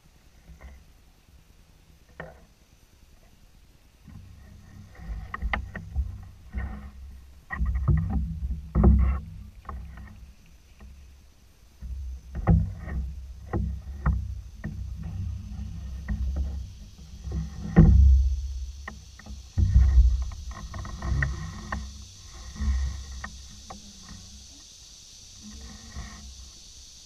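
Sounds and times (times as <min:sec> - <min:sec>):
paddle knocks: 0:05.0 - 0:10.2, 0:11.8 - 0:24.4.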